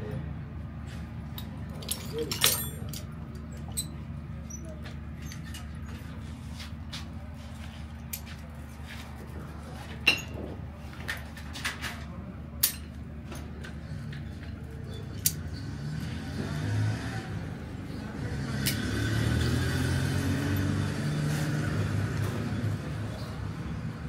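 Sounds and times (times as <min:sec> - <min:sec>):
metal tool clinks and knocks: 0:01.3 - 0:05.8
vehicle engine running: 0:13.0 - 0:24.0.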